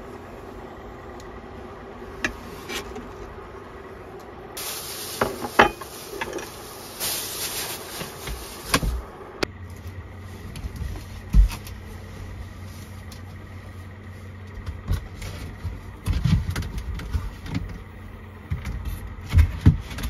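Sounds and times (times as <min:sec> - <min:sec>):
steady low hum: 0:00.0 - 0:20.0
hiss: 0:04.6 - 0:09.1.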